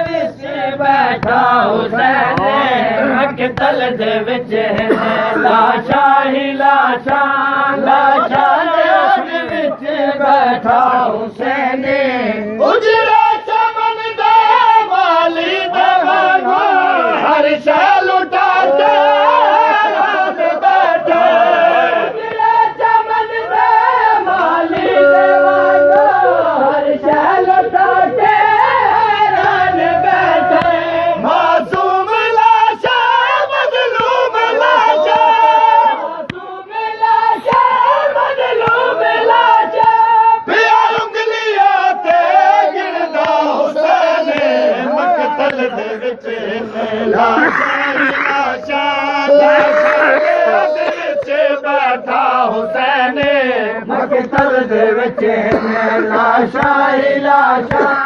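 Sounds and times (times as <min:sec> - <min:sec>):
voices singing a lament: 0:00.0 - 0:58.0.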